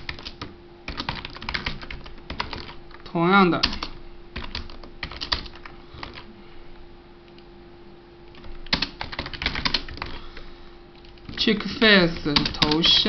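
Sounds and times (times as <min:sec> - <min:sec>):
typing on computer keyboard: 0:00.0 - 0:02.8, 0:03.6 - 0:06.2, 0:08.3 - 0:10.1, 0:12.2 - 0:12.9.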